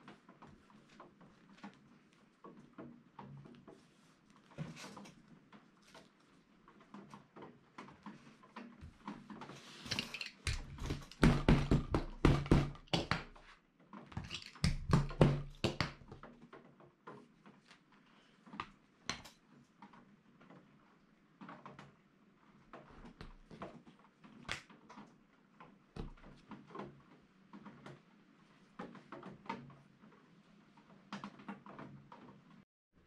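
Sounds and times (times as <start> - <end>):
hammer beating fabric on table: 10.5 - 13.5, 14.6 - 16.2.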